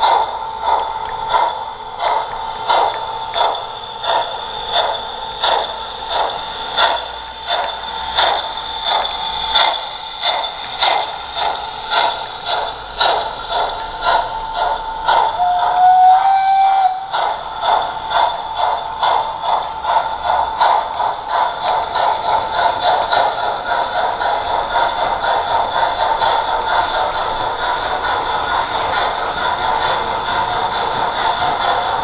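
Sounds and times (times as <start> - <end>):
steam locomotive chuffs: 0.0 - 32.0
steam whistle: 15.4 - 17.1.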